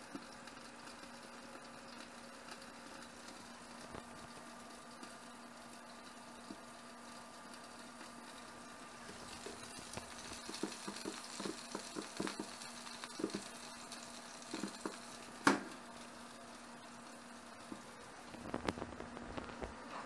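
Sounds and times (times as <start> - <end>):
fish sizzling on a tray: 0.0 - 19.9
oven door clunk: 15.4 - 15.7.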